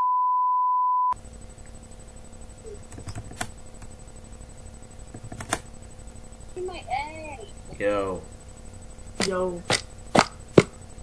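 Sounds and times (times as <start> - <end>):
low hum: 1.2 - 11.0
computer mouse clicking: 2.8 - 3.9, 5.1 - 5.7.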